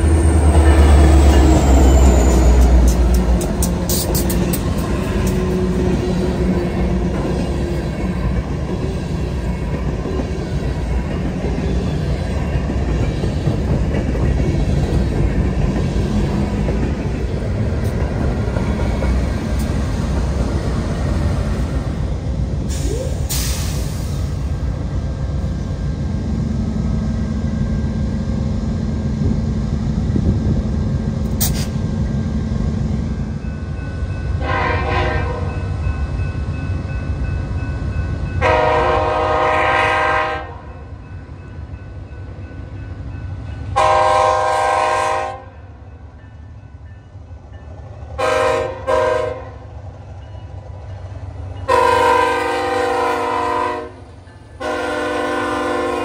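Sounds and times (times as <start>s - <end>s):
freight train rumble: 0.0s - 56.0s
train clanks: 0.0s - 56.0s
locomotive air horn blasts: 34.4s - 35.5s, 38.4s - 40.6s, 43.8s - 45.5s, 48.2s - 49.6s, 51.7s - 54.0s, 54.6s - 56.0s.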